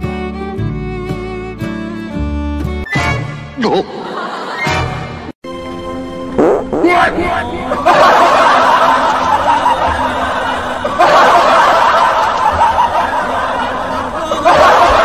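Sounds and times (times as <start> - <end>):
audience laughter: 3.6 - 5.3, 7.4 - 15.0.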